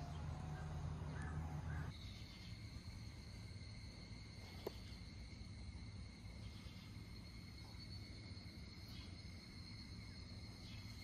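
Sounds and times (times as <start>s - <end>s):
cricket trilling: 0.0s - 11.0s
steady low hum: 0.0s - 11.0s.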